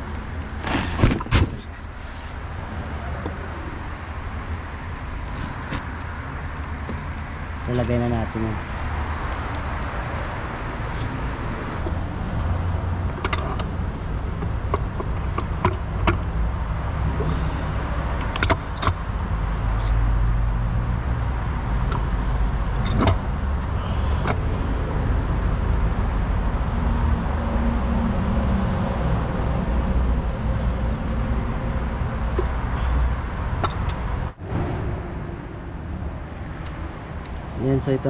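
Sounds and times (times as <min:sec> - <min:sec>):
steady low hum: 0:29.2 - 0:38.0.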